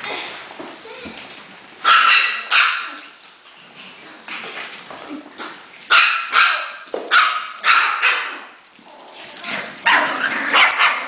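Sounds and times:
puppies barking and yipping: 0:05.9 - 0:08.6, 0:09.6 - 0:11.0.

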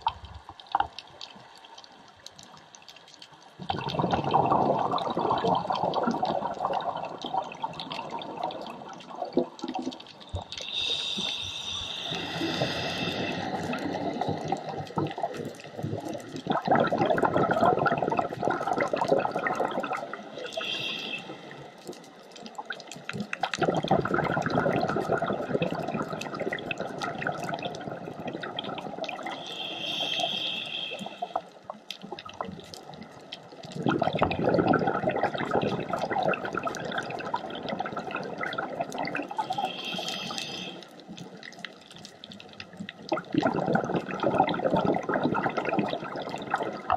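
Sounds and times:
exhaled bubbles rushing: 0:03.6 - 0:21.5, 0:23.5 - 0:30.4, 0:33.7 - 0:40.5, 0:43.0 - 0:46.9
regulator inhalation hiss: 0:10.6 - 0:14.3, 0:20.4 - 0:21.7, 0:29.3 - 0:31.4, 0:39.4 - 0:40.9.

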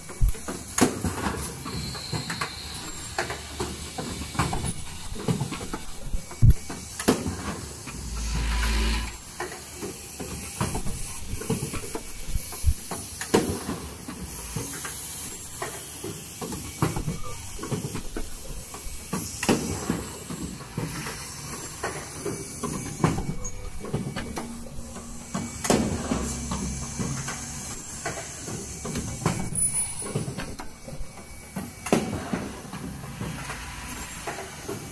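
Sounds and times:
machine clicking and clacking: 0:00.0 - 0:07.2, 0:21.5 - 0:34.9
pneumatic air hisses: 0:00.0 - 0:34.9.

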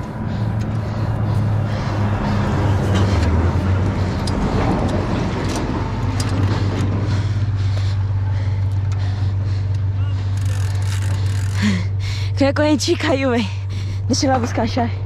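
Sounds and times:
low rumble: 0:00.0 - 0:15.0
bike chain metallic clicks: 0:10.2 - 0:11.8.

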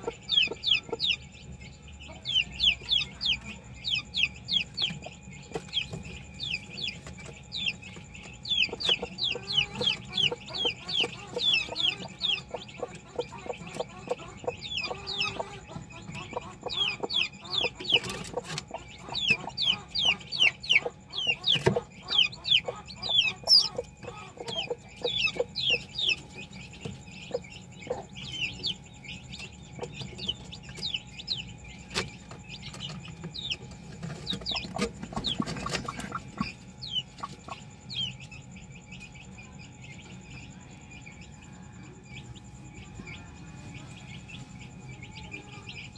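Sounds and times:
chick peeping: 0:00.0 - 0:45.9
hen clucking softly: 0:08.4 - 0:28.8, 0:29.4 - 0:38.2.

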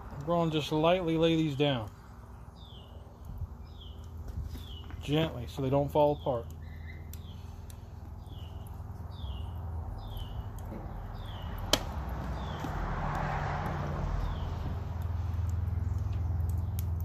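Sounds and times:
bird chirping: 0:02.3 - 0:12.8.

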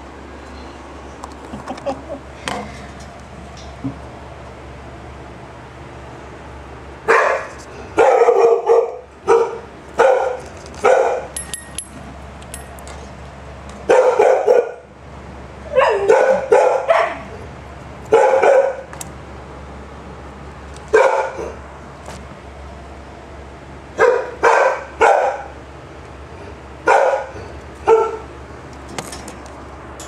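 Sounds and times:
animal barking: 0:07.1 - 0:11.3, 0:13.9 - 0:14.8, 0:15.7 - 0:17.4, 0:18.1 - 0:18.9, 0:20.9 - 0:21.6, 0:24.0 - 0:25.6, 0:26.8 - 0:28.3.

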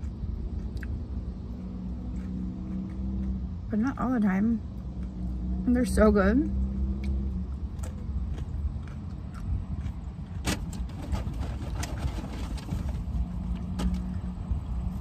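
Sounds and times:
person chewing food: 0:00.0 - 0:03.6, 0:07.0 - 0:10.4.

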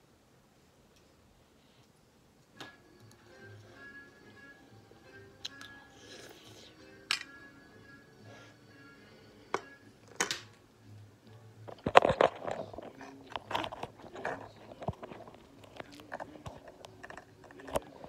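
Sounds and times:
person chewing and eating: 0:05.4 - 0:07.0.

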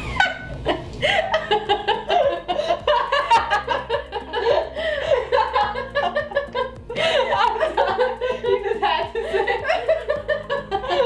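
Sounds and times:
women laughing: 0:00.0 - 0:11.0.

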